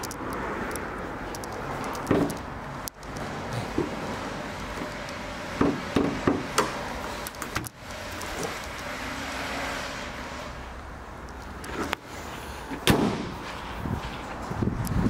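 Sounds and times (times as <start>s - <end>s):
car bonnet thudding shut: 12.8s - 13.3s.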